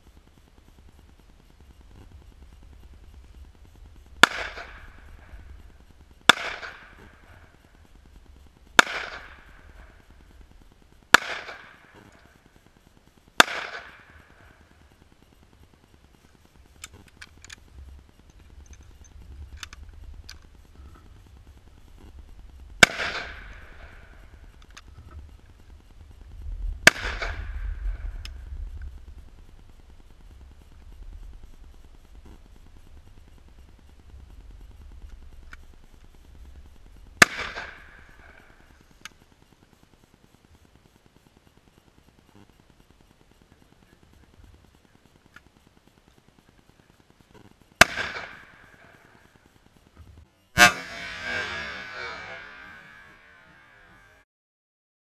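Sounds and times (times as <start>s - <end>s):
gunshots with echo: 4.2s - 7.8s, 8.8s - 10.1s, 11.1s - 12.3s, 13.4s - 14.7s, 22.8s - 24.6s, 26.8s - 28.2s, 37.2s - 38.7s, 47.8s - 48.9s.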